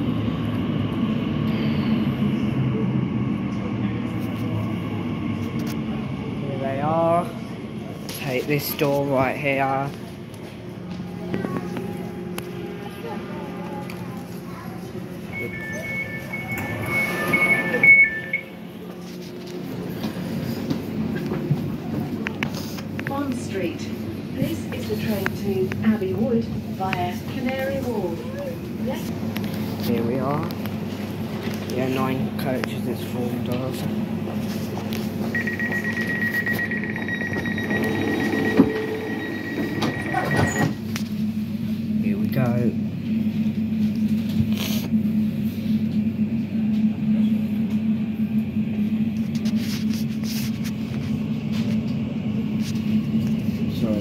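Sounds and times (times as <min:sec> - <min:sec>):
steady hum of standing train: 0:00.0 - 0:54.0
two-pitch door warning beeps: 0:15.3 - 0:18.6, 0:35.3 - 0:40.8.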